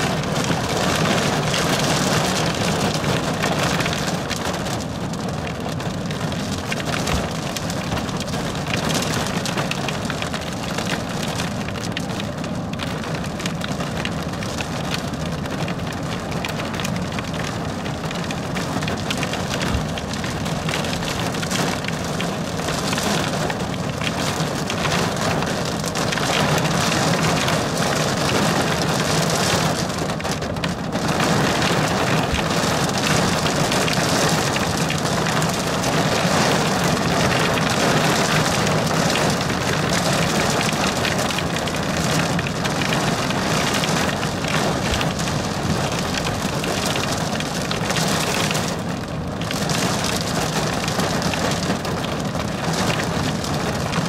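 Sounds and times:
heavy rain on car roof: 0.0s - 54.0s.

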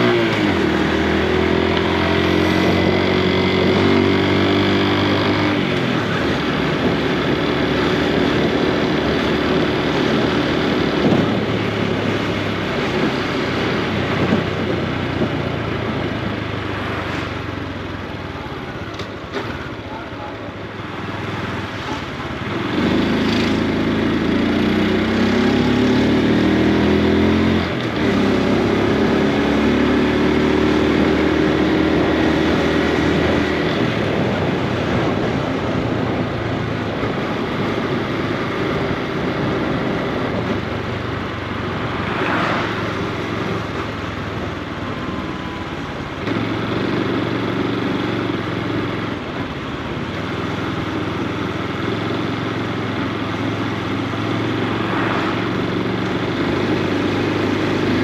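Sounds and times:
motorcycle engine pulling hard: 0.0s - 19.8s, 20.8s - 58.0s.

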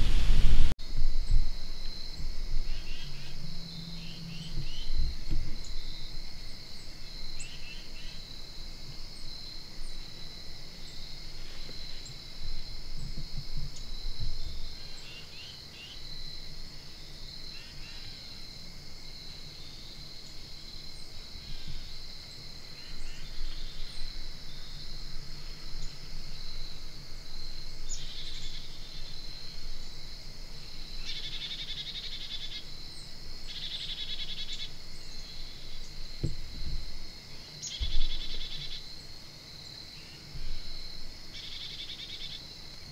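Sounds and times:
insect buzzing trills: 0.0s - 42.9s
insects chirring: 0.0s - 42.9s
low muffled thumps: 36.2s - 36.9s.

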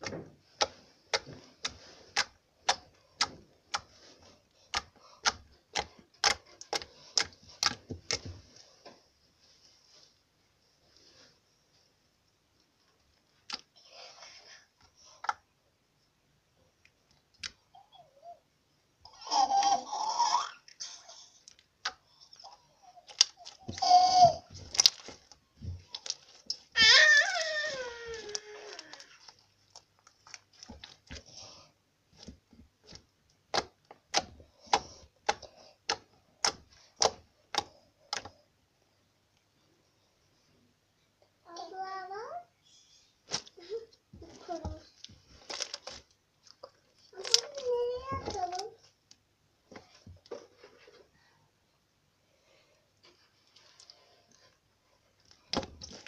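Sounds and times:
slime squishing: 0.0s - 8.6s, 21.5s - 38.4s, 44.2s - 48.7s.

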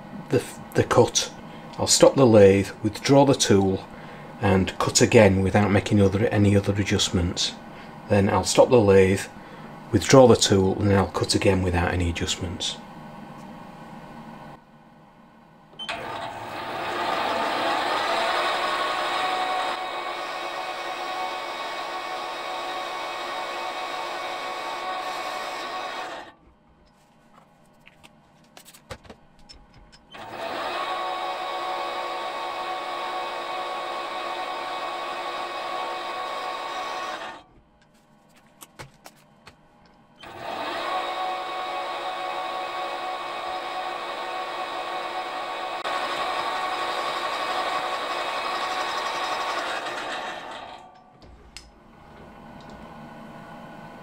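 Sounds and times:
metal lathe running: 15.9s - 26.3s, 30.0s - 37.4s, 40.2s - 51.1s.

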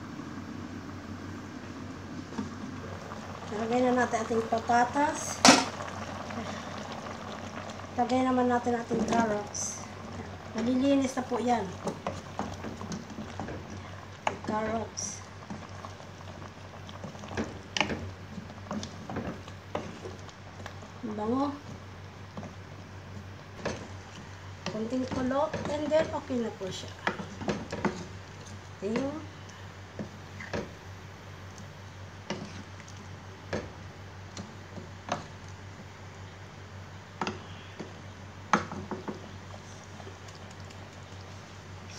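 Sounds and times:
curry bubbling in saucepan: 0.0s - 41.9s
steady low hum: 0.0s - 41.9s
spatula knocking and scraping pot: 24.6s - 26.3s, 27.0s - 28.1s.

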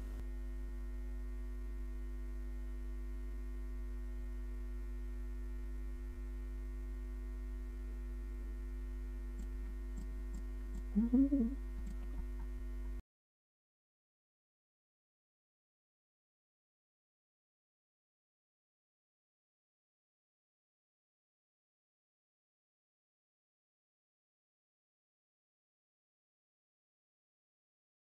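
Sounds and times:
electrical mains hum: 0.0s - 13.0s
person murmuring: 10.9s - 11.6s.

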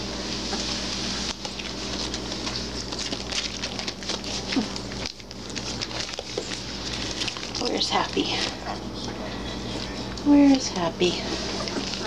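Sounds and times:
plastic tarp crinkling: 0.1s - 8.6s
puppy whimper: 11.2s - 12.0s.

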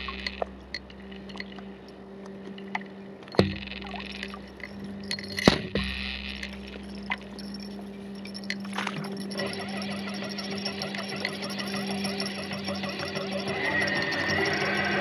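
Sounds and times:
water splashing against hull: 0.0s - 13.1s
boat motor humming: 0.0s - 15.0s.

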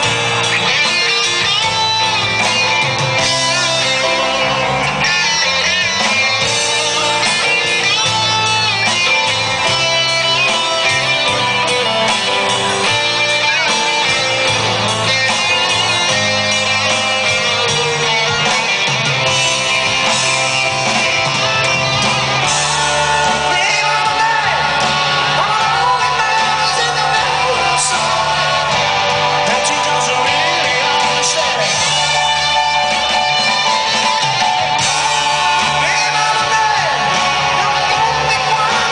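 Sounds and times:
electric guitars and drums: 0.0s - 38.9s
person singing: 22.4s - 38.9s.

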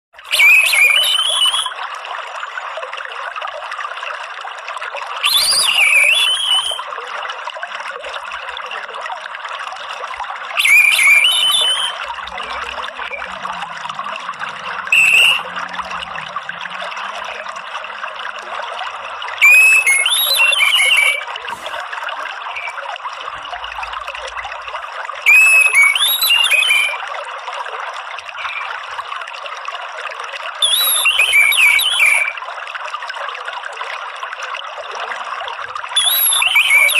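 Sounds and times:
trickling water: 0.2s - 36.9s
thrush chattering calls: 10.6s - 12.4s, 14.9s - 15.5s, 19.4s - 21.7s, 25.3s - 27.0s, 28.4s - 28.7s.

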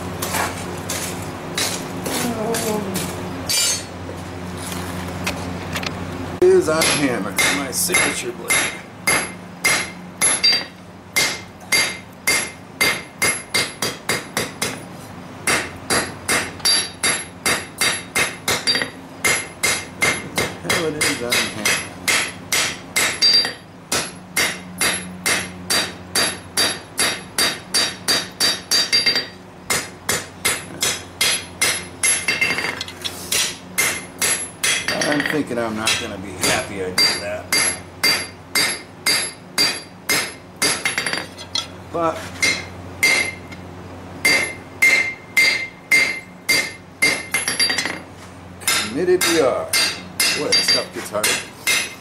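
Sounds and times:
hammer ringing on steel anvil: 3.5s - 3.9s, 6.8s - 14.0s, 16.3s - 32.7s, 33.8s - 41.7s, 42.4s - 43.5s, 44.2s - 48.0s, 48.7s - 52.0s.

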